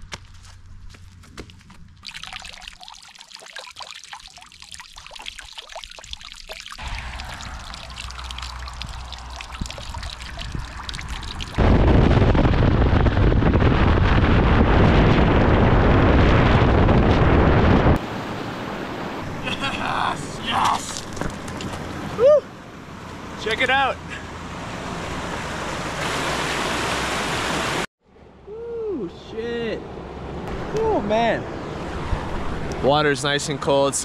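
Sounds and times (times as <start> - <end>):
water splashing into trough: 2.0 - 11.6
wind buffeting microphone: 6.8 - 18.0.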